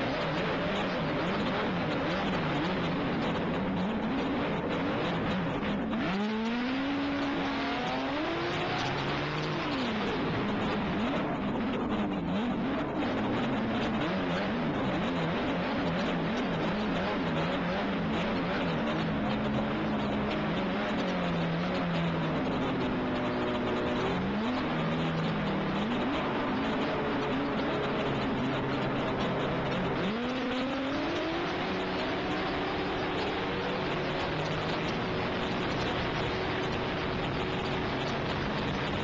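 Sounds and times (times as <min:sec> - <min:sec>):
snowmobile engine running hard: 0:00.0 - 0:39.0
track noise: 0:00.0 - 0:39.0.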